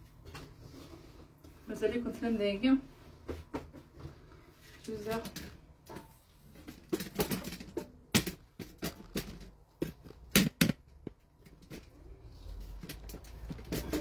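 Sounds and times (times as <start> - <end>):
handling clicks and knocks: 5.2 - 12.0.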